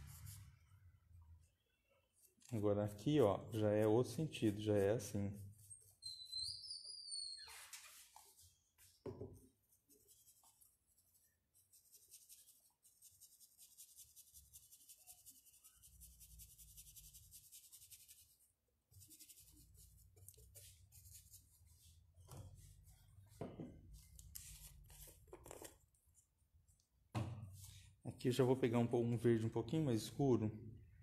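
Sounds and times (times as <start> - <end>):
paintbrush rubbing on wooden board: 3.4 - 7.3, 9.4 - 23.4.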